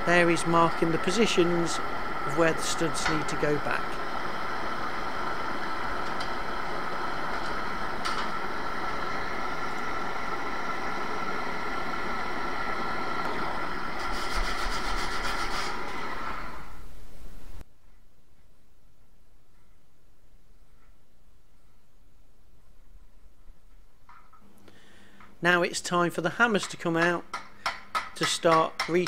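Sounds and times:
blowtorch hissing: 0.0 - 16.9.

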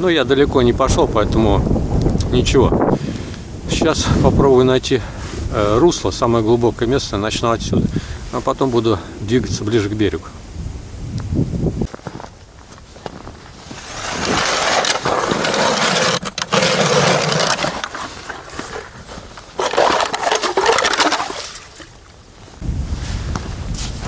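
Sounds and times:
ice auger grinding and scraping: 13.4 - 22.0.

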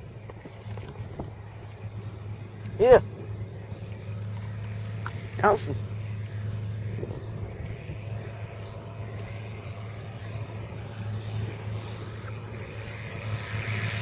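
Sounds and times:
tractor diesel engine droning: 0.0 - 14.0.

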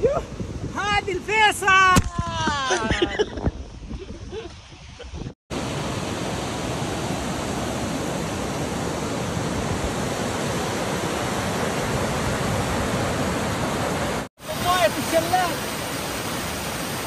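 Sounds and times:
stream rushing over rocks: 5.5 - 17.0.

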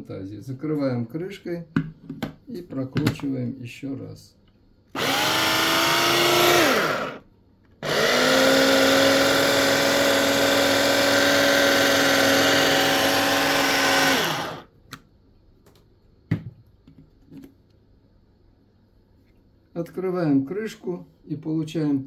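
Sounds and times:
food chopper motor running: 5.0 - 7.2, 7.8 - 14.7.

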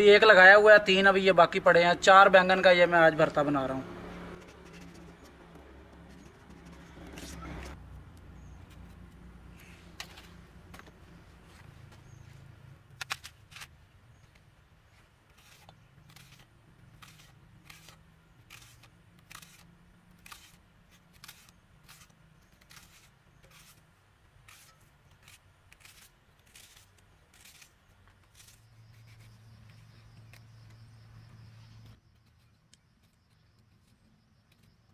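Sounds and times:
knife cutting onions: 4.1 - 7.8, 15.3 - 23.8, 24.4 - 30.6.

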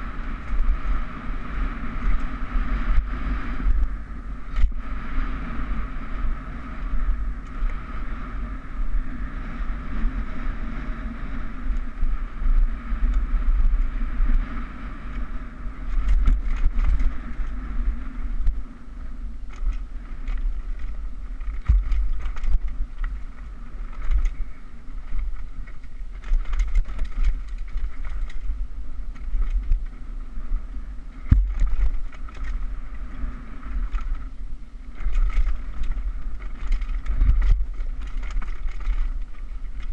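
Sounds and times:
wind buffeting microphone: 0.0 - 39.9
bike knocks and rattles: 9.8 - 30.1, 31.0 - 39.9
tyres rolling on dirt: 19.4 - 39.9.

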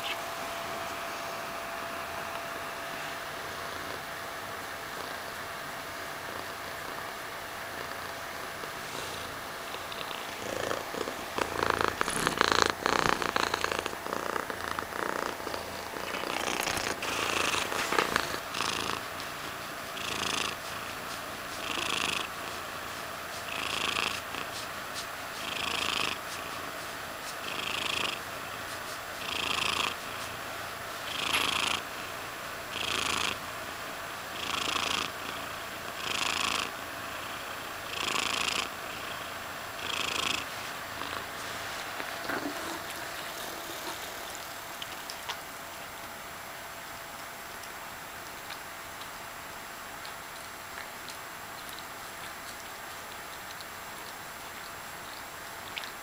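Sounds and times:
cat purring: 2.9 - 30.4, 31.0 - 33.4, 34.3 - 44.5
crackling rustle: 6.2 - 31.7.

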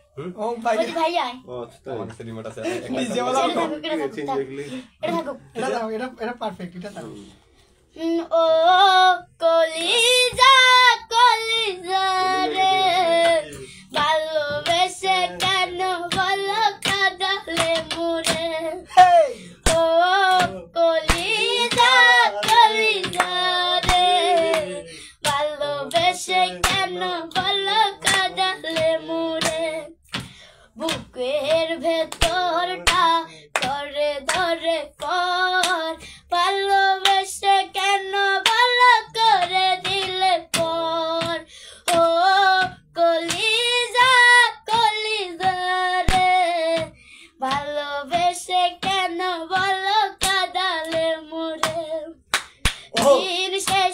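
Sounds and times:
girl singing: 7.9 - 52.4, 53.0 - 53.9
hand claps: 11.9 - 18.8, 19.6 - 53.9.

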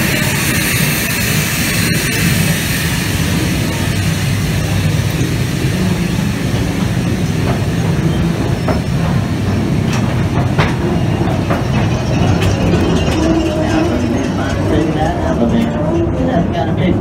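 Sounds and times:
train wheels rumbling on track: 0.0 - 17.0
track clicks and clanks: 4.7 - 17.0.

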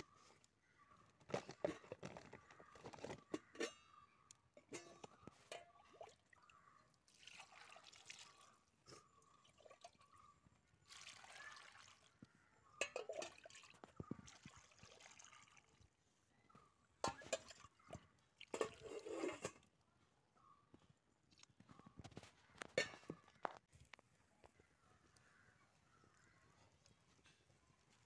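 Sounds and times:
water pouring into a metal pot: 4.7 - 10.2, 10.8 - 12.2, 12.8 - 16.0, 17.0 - 19.7.

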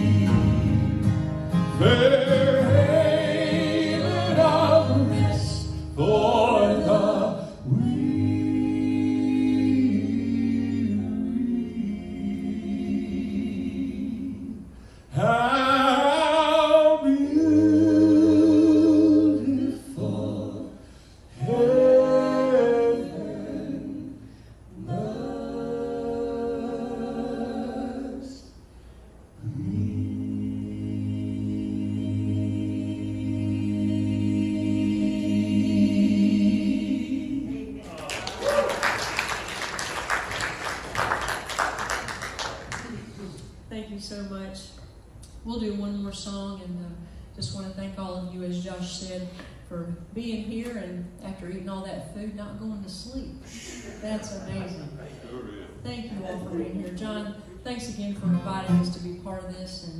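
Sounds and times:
gospel vocal group singing: 0.0 - 43.5, 53.4 - 57.6.

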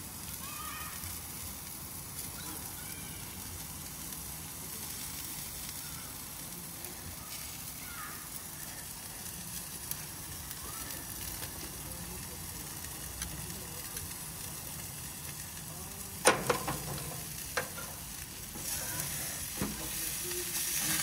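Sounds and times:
steak sizzling: 0.0 - 21.0.

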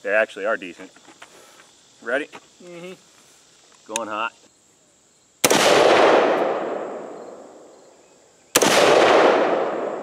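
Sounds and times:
gunshot echo rolling: 5.4 - 7.7, 8.6 - 10.0
rifle shot: 5.4 - 7.7, 8.5 - 10.0.

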